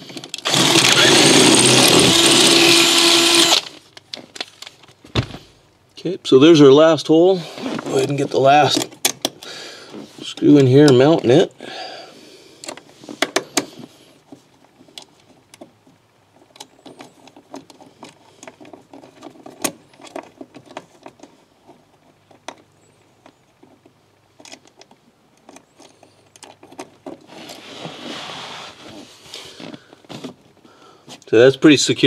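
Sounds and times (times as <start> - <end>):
rustle: 12.1 - 32.0.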